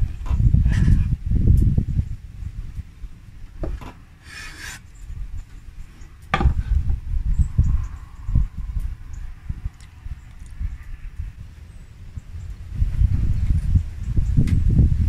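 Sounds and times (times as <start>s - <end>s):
knife sawing through meat on wood: 4.2s - 4.8s.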